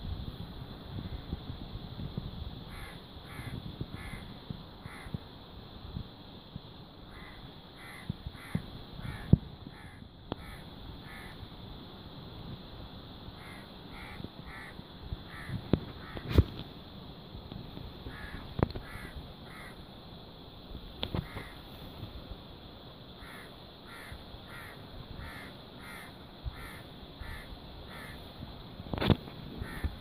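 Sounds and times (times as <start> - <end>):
crows cawing: 2.7 - 5.2, 7.1 - 11.4, 13.4 - 16.3, 18.1 - 19.8, 21.2 - 21.6, 23.2 - 28.2, 29.6 - 30.0.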